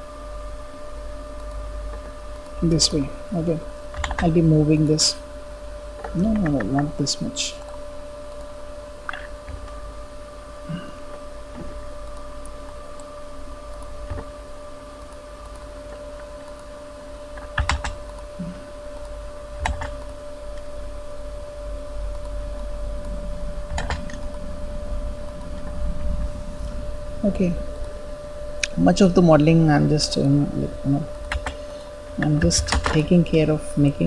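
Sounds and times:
electrical hum with whine: 0.0 - 34.0
keyboard and mouse clicks: 3.9 - 4.3, 6.0 - 6.9, 9.0 - 9.8, 17.4 - 18.2, 19.6 - 20.7, 23.7 - 24.3, 31.2 - 31.6, 32.2 - 33.1.

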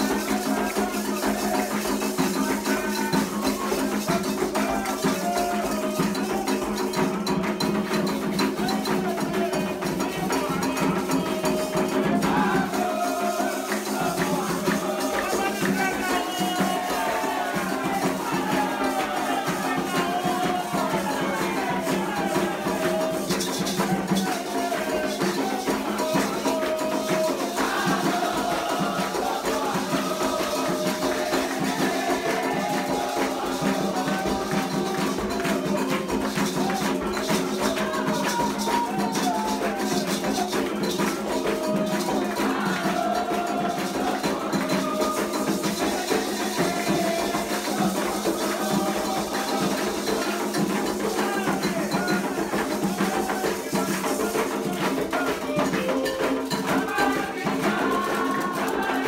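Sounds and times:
hand clapping: 0.0 - 59.0
hand drums: 0.0 - 59.0
voices singing: 0.0 - 59.0.

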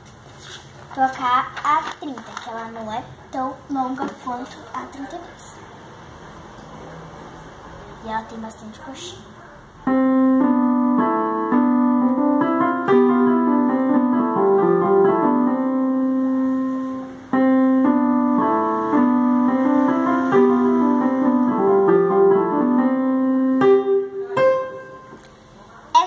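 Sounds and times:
electronic keyboard piano melody: 9.8 - 25.2.

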